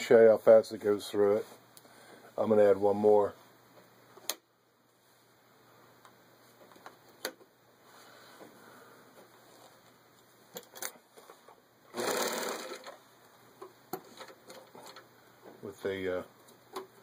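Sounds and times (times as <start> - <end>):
sewing machine stitching: 11.9 - 13.0.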